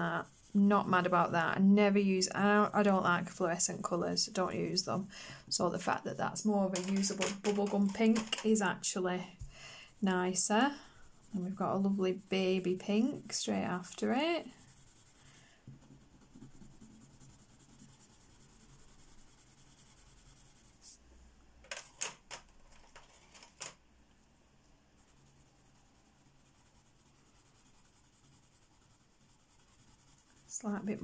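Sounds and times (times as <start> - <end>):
pencils clicking on a surface: 6.7 - 8.6, 21.6 - 23.8.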